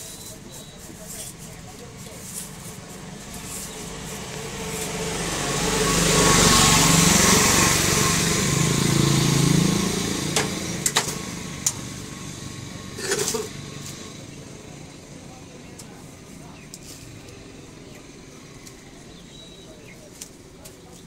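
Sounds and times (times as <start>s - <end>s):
small engine passing by: 3.0s - 15.0s.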